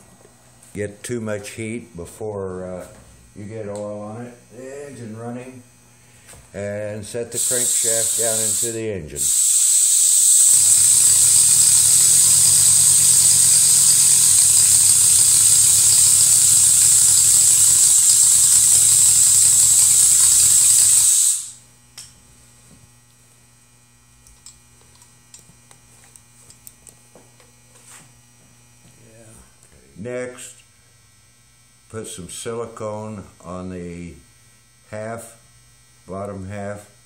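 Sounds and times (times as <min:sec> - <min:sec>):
loud machine hiss and buzz: 0:07.0 - 0:21.8.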